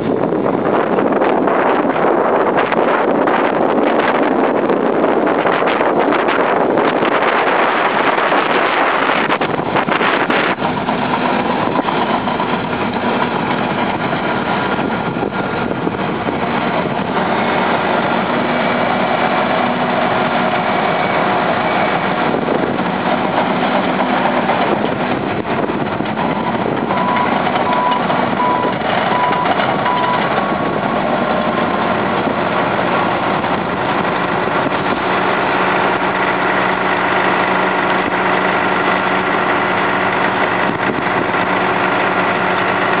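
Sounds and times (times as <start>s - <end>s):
bulldozer diesel engine running: 0.0s - 43.0s
backup alarm beeping: 26.4s - 30.3s.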